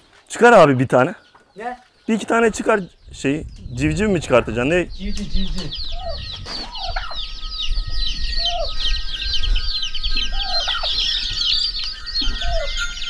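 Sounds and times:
chicks peeping: 0:01.1 - 0:13.0
hen calling: 0:04.0 - 0:12.8.

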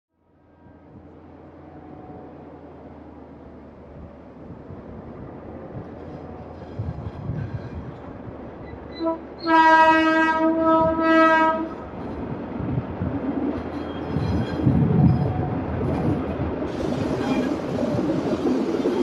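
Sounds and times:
rumble of train rolling past: 0:00.1 - 0:19.0
locomotive air horn: 0:08.9 - 0:11.8.

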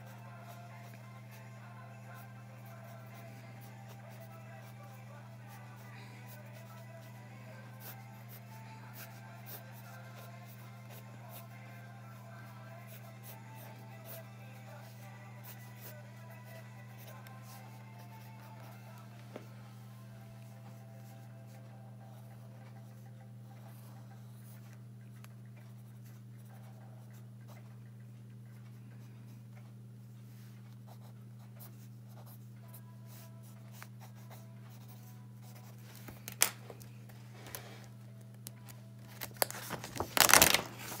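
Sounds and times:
steady low hum: 0:00.0 - 0:40.0
pen scratching on paper: 0:02.2 - 0:11.5, 0:30.9 - 0:35.8.

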